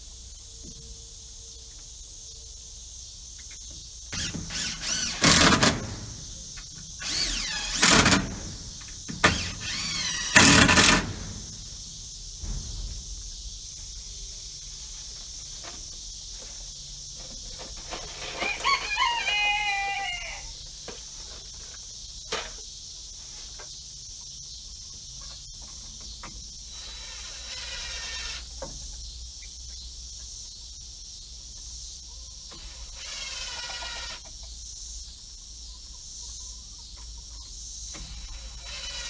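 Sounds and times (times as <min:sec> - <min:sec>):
steady high hiss: 0:00.0 - 0:05.0, 0:06.0 - 0:36.9
rooster crowing: 0:18.3 - 0:20.6.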